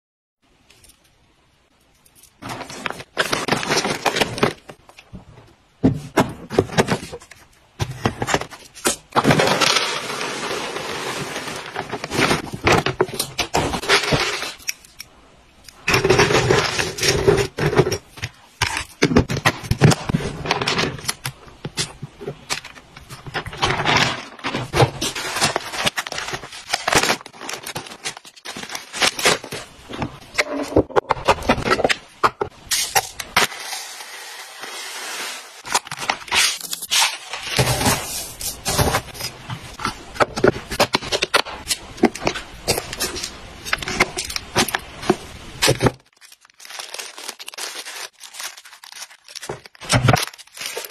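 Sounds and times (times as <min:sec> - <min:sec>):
plastic packaging crinkling: 0:02.4 - 0:05.0, 0:15.9 - 0:30.2, 0:35.6 - 0:50.9
pellets rattling in plastic box: 0:09.2 - 0:13.1, 0:46.1 - 0:50.9.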